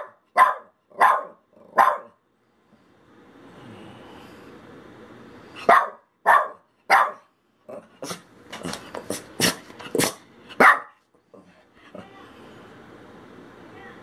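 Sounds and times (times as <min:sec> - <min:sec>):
small dog barking: 0:00.0 - 0:02.2, 0:05.6 - 0:07.3, 0:10.0 - 0:11.0.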